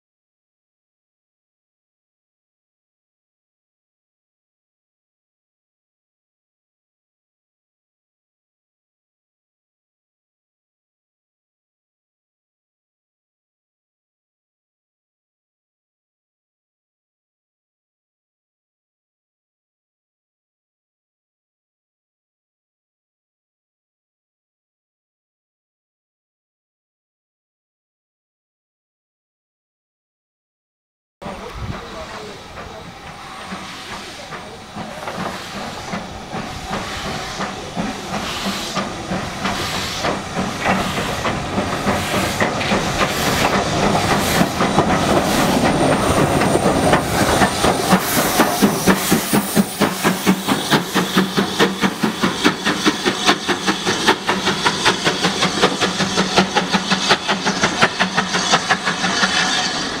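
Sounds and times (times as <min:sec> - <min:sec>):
steam hiss: 0:31.2 - 1:00.0
steam locomotive exhaust chuffs: 0:31.2 - 1:00.0.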